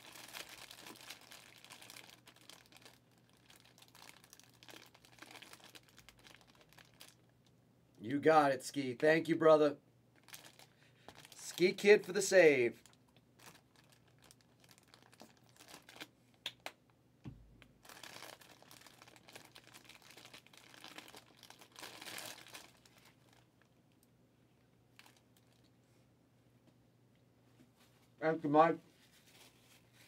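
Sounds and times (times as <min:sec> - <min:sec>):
crinkling and rustling: 0:12.8 - 0:16.4, 0:17.3 - 0:24.1, 0:24.9 - 0:25.8, 0:28.9 - 0:30.0.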